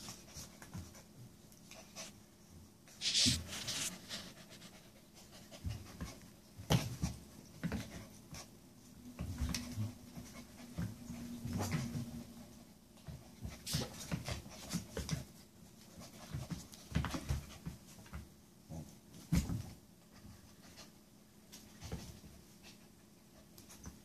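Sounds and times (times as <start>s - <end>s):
dogs scuffling: 2.9s - 18.3s.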